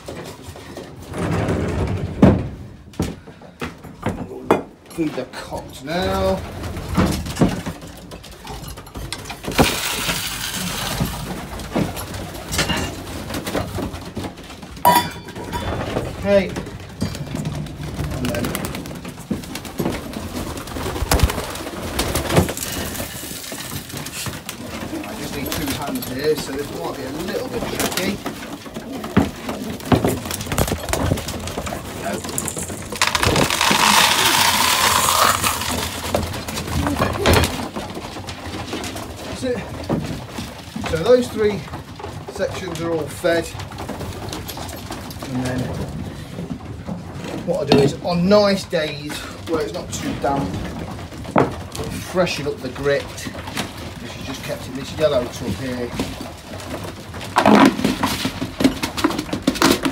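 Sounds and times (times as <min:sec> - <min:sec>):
knocks and clinks of trough: 0:00.0 - 0:48.9
grain pouring into wooden trough: 0:09.5 - 0:11.5, 0:21.1 - 0:24.3, 0:31.8 - 0:36.6.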